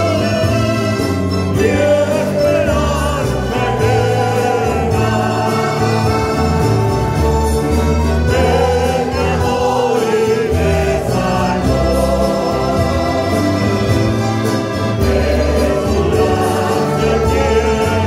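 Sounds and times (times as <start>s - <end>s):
accordion: 0.0s - 18.0s
acoustic guitars: 0.0s - 18.0s
bass line: 0.0s - 18.0s
choir singing a hymn: 0.0s - 18.0s.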